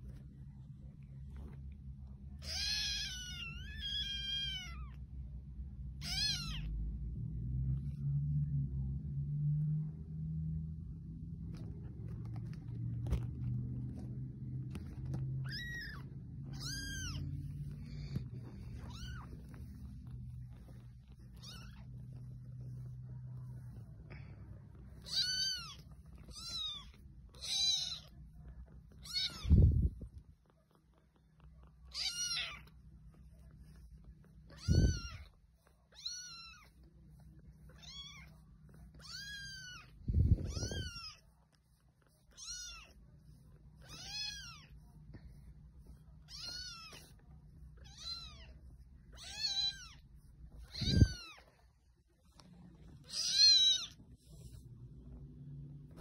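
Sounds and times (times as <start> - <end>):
kitten mewing: 6.0 - 6.7, 15.4 - 19.6, 24.9 - 28.2, 29.0 - 30.0, 34.5 - 35.3, 39.0 - 41.2, 50.6 - 51.5, 53.0 - 54.0.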